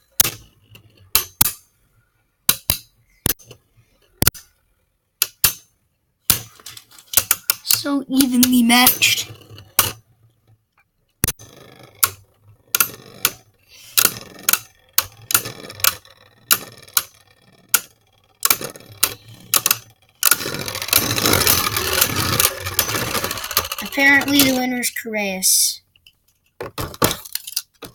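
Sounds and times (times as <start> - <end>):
spinning top rattling and scraping: 6.4 - 10.5, 11.3 - 25.4
spinning tops colliding clicks: 14.0 - 24.6.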